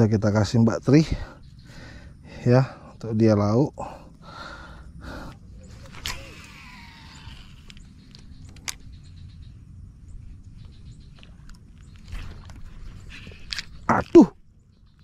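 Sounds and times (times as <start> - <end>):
low steady rumble: 4.0 - 14.9
fishing reel whirring: 5.7 - 8.8
reel clicks: 5.7 - 9.4.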